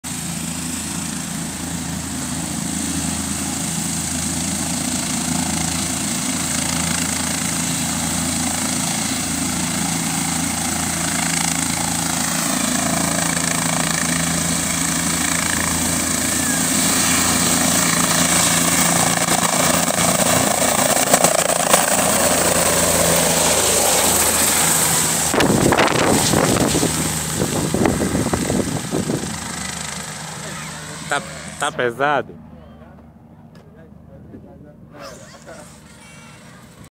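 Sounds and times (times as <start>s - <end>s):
helicopter engine whine: 0.0s - 36.9s
wind noise on microphone: 25.2s - 29.6s.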